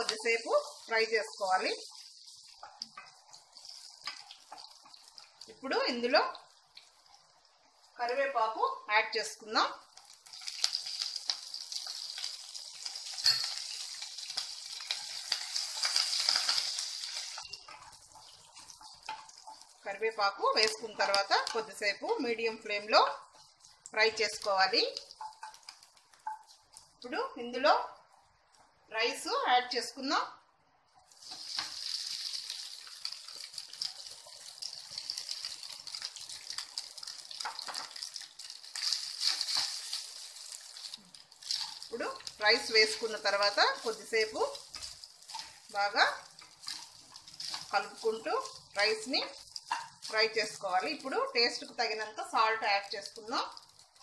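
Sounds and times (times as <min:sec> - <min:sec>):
spices sizzling in hot oil: 0:00.0 - 0:29.8, 0:31.0 - 0:54.0
spatula turning rice: 0:10.0 - 0:19.8, 0:31.1 - 0:50.4.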